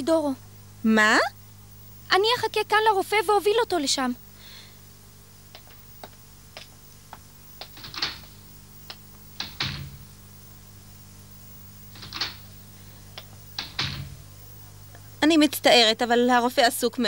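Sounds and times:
faint steady hum: 0.0s - 17.0s
door shutting with a thud: 7.6s - 8.4s, 9.4s - 10.2s, 11.9s - 12.6s, 13.6s - 14.3s.

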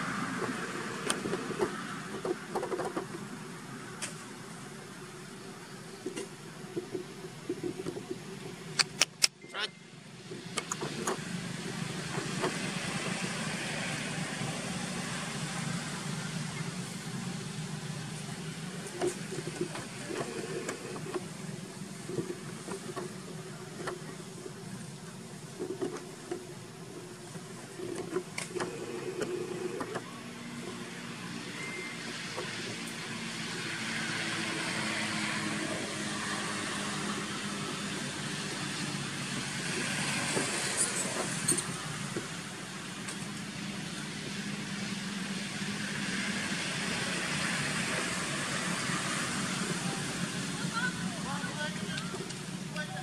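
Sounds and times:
motorbikes passing on a road: 0.0s - 9.0s, 10.2s - 53.0s
sharp clicks and knocks: 0.4s - 3.2s, 8.8s - 9.4s.

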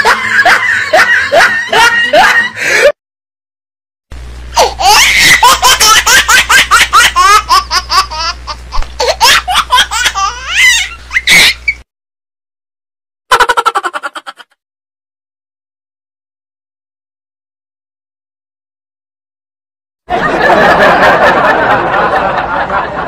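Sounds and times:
high-pitched laughter: 0.0s - 2.9s, 4.6s - 11.8s, 13.3s - 14.6s
shrill voice: 10.5s - 11.8s.

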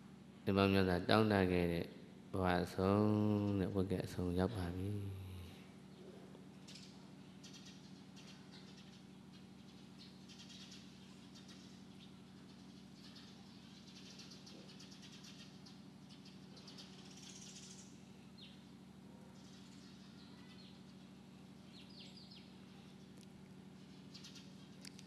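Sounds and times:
steady low hum: 0.0s - 25.0s
faint bird chirps: 5.4s - 25.0s.

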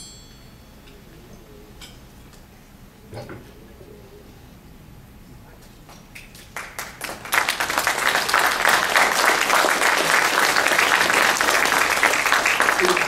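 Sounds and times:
audience applauding: 6.3s - 13.0s.

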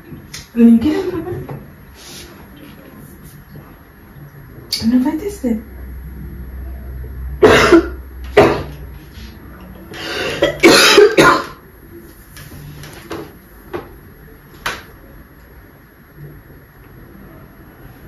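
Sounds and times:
woman coughing into towel: 7.4s - 8.7s, 10.2s - 11.6s.

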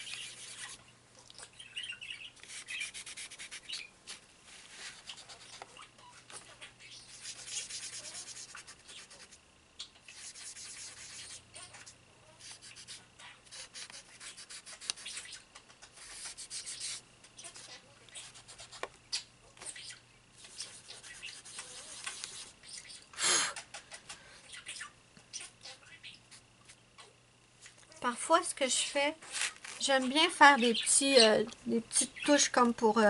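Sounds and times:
scratchy scrubbing on paper: 0.0s - 0.8s, 2.4s - 3.7s, 7.0s - 9.4s, 10.1s - 18.9s, 20.4s - 22.5s.

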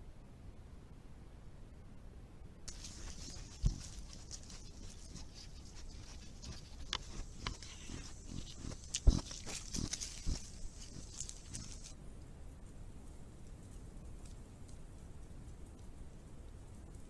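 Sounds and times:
steady high hiss: 1.4s - 17.0s
animals rustling in leaf litter: 2.7s - 11.9s.

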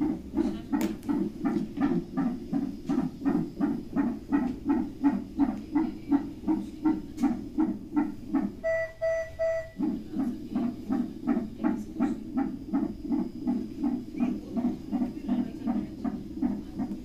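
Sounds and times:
fetal heartbeat whooshing pulse: 0.0s - 17.0s
short monitor beeps: 8.6s - 9.8s.

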